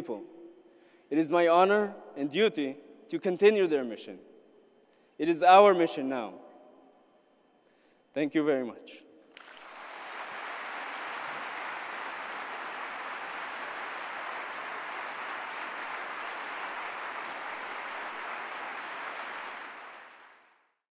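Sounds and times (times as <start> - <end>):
large audience applauding: 9.3 - 20.7.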